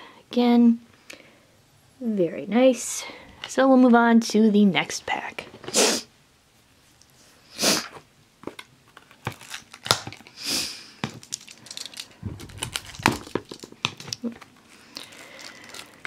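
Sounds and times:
plastic wrap crinkling: 8.6s - 16.0s.

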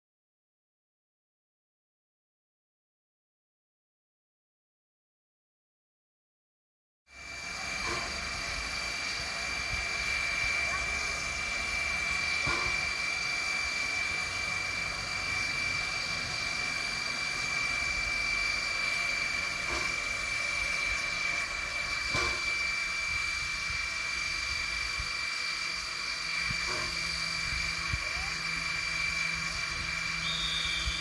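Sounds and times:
steam locomotive hissing: 7.1s - 31.0s.

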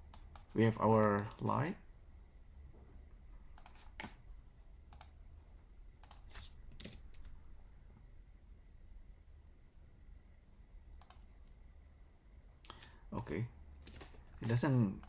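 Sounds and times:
keyboard and mouse clicks: 0.0s - 1.5s, 3.5s - 4.2s, 4.9s - 5.2s, 6.0s - 7.8s, 11.0s - 11.4s, 13.8s - 15.0s
faint low hum: 0.0s - 15.0s.

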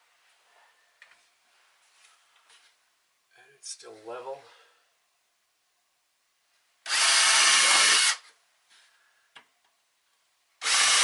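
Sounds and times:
cordless drill boring into wood: 6.9s - 8.3s, 10.6s - 11.0s.

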